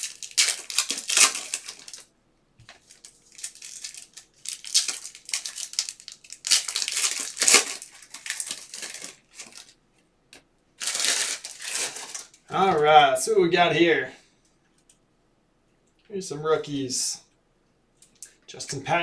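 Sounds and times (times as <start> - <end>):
foil pack crinkling and tearing: 0.0 - 2.1, 2.7 - 9.8, 10.8 - 12.8.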